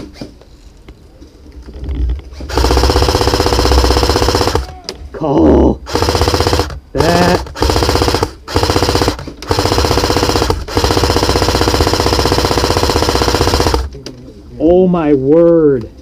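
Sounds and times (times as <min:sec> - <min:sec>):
airsoft rifle firing full auto: 0:02.4 - 0:04.8, 0:05.9 - 0:13.9.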